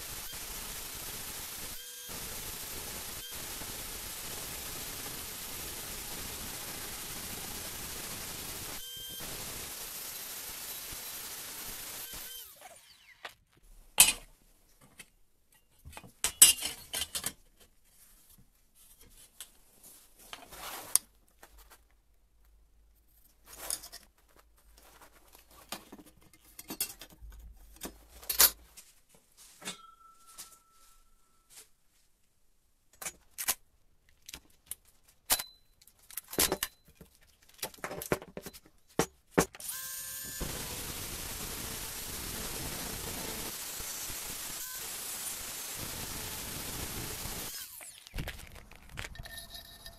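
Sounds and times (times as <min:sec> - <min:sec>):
metal tools clinking and knocking: 0:15.6 - 0:17.4, 0:26.1 - 0:28.6, 0:29.6 - 0:30.8, 0:49.0 - 0:49.9.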